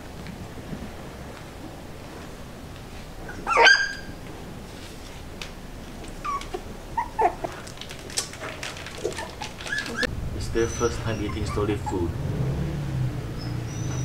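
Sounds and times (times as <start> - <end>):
puppies yelping and whimpering: 3.3 - 4.1, 6.1 - 7.7, 8.8 - 12.1.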